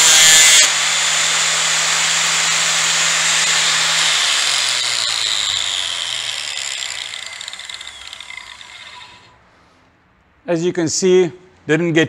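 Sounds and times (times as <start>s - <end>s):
angle grinder spinning: 0.0s - 9.4s.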